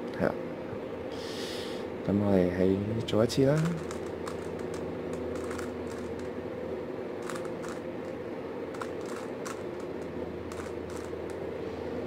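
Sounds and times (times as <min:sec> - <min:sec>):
steady hum: 0:00.0 - 0:12.0
puzzle cube layers clicking: 0:03.6 - 0:06.3, 0:07.2 - 0:07.8, 0:08.7 - 0:11.4.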